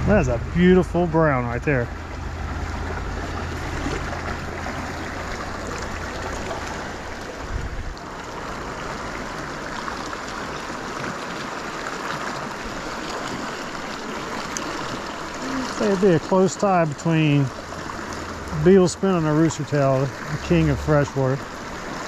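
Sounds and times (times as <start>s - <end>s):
low rumble: 0.0s - 8.0s, 17.6s - 21.6s
river rushing water: 0.0s - 22.0s.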